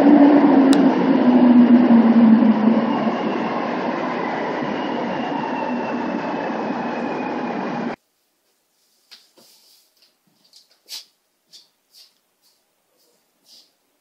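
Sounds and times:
metro train rumbling: 0:00.0 - 0:08.0.

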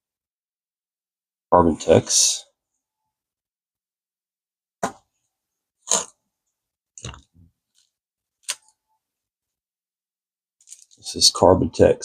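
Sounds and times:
plastic packet rustling: 0:10.6 - 0:11.0.

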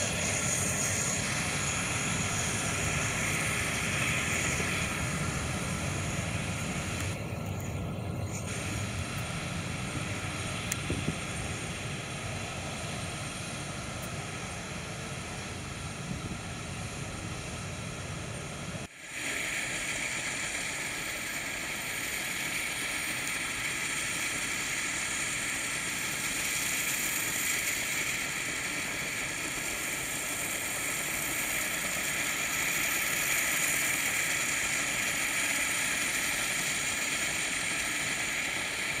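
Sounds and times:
auxiliary power unit hiss and whine: 0:00.0 - 0:39.0.

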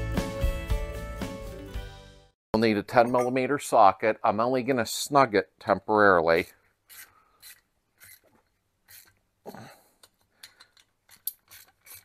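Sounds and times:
hand tool clicking and scraping metal: 0:06.9 - 0:09.2, 0:10.0 - 0:12.0.

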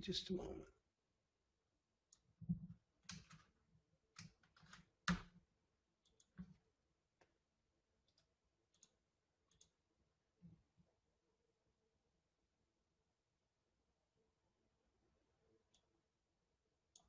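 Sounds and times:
computer mouse clicking: 0:08.1 - 0:09.8.

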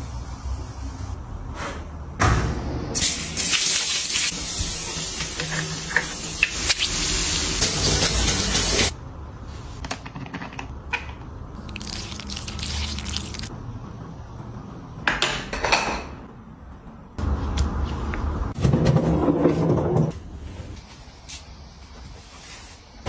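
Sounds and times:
running water spraying: 0:11.6 - 0:13.5.

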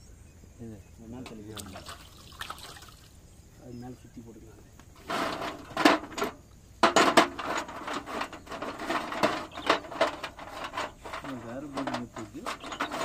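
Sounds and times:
nut and bolt clicking and scraping: 0:05.0 - 0:13.0
sharp metal knocks: 0:05.0 - 0:13.0.

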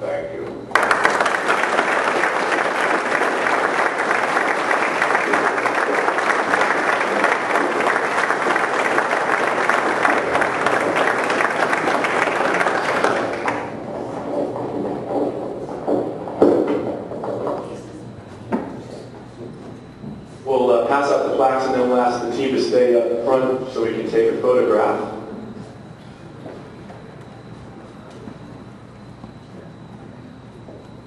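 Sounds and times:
audience applauding: 0:00.7 - 0:13.9.

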